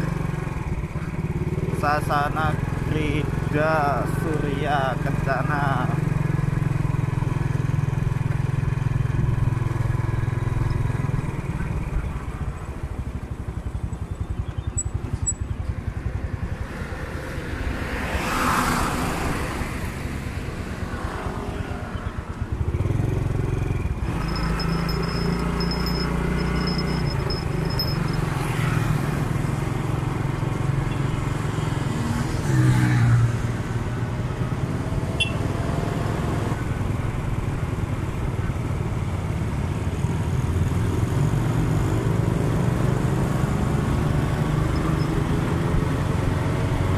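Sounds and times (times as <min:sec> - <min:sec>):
motorcycle engine running: 0:00.0 - 0:17.6, 0:22.2 - 0:32.2.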